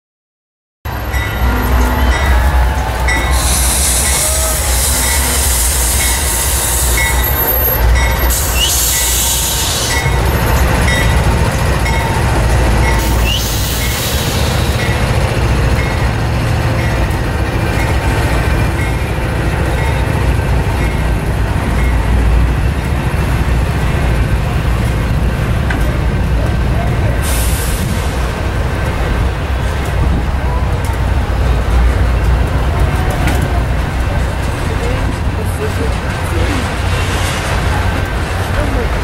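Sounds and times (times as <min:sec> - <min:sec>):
freight train rumbling past: 0:00.9 - 0:39.0
high wheel squeal: 0:01.0 - 0:15.0.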